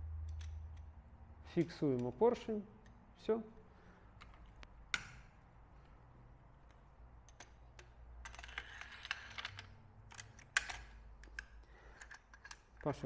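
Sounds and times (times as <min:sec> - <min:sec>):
metal gun parts clicking: 0:00.3 - 0:01.0, 0:06.6 - 0:13.0.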